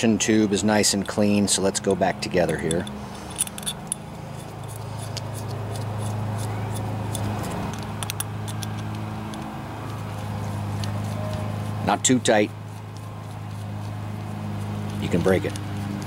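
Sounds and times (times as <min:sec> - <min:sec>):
steady low hum: 0:00.0 - 0:16.0
light metal clicks: 0:02.3 - 0:05.6, 0:06.4 - 0:10.0.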